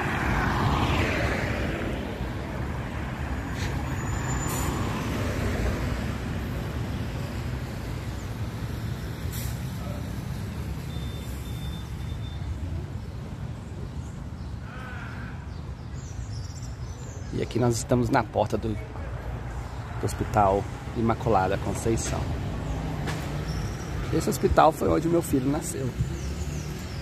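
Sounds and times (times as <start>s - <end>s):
vehicle passing close by: 0.0s - 7.7s
low rumble of traffic: 0.0s - 27.0s.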